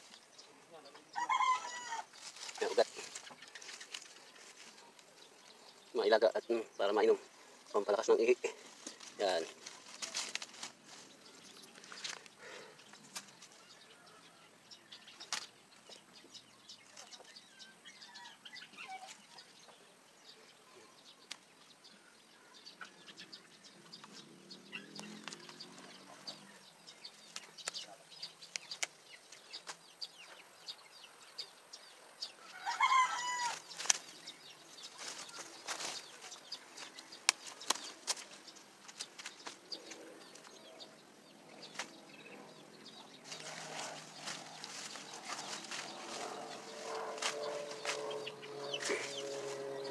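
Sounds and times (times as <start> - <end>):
leaves rustling: 0.0 - 13.8, 32.0 - 40.6, 41.4 - 49.9.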